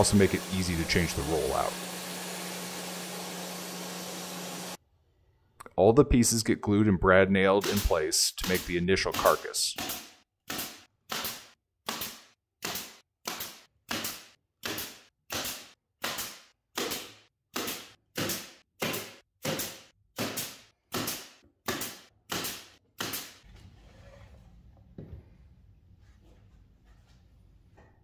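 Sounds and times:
nail gun firing into plywood: 0:07.6 - 0:23.4.

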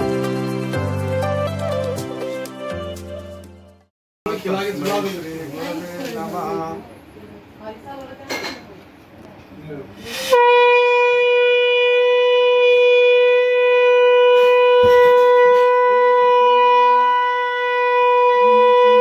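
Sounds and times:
conch shell blast: 0:10.1 - 0:19.0.

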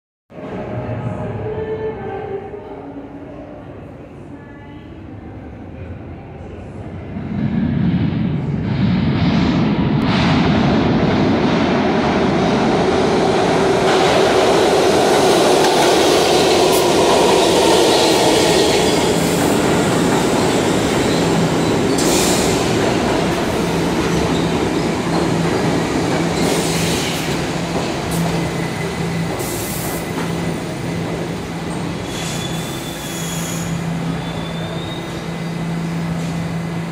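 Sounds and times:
train wheels rumbling on rails: 0:07.1 - 0:36.9
wheel and brake squeals: 0:32.0 - 0:35.6.

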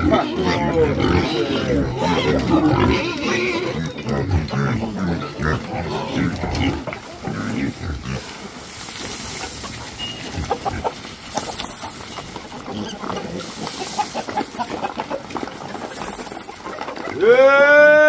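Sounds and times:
chicken clucks: 0:00.0 - 0:17.8
rustling: 0:05.9 - 0:17.2.

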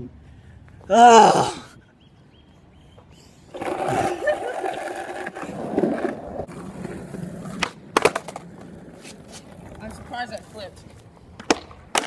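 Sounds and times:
skateboard wheels rolling on asphalt: 0:03.5 - 0:12.0
skateboard tail clack: 0:03.6 - 0:10.4, 0:11.3 - 0:12.0.

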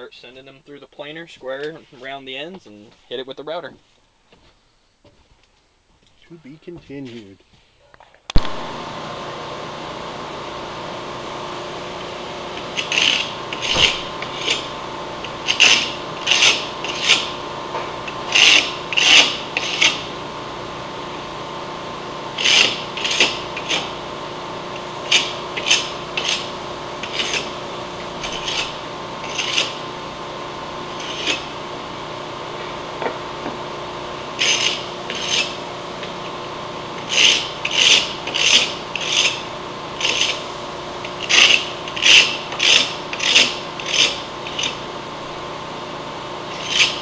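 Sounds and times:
scraper rasping on wood: 0:15.5 - 0:17.3, 0:18.3 - 0:20.1, 0:28.2 - 0:29.8, 0:34.4 - 0:35.6, 0:40.0 - 0:40.4, 0:41.2 - 0:44.8, 0:46.6 - 0:47.0.

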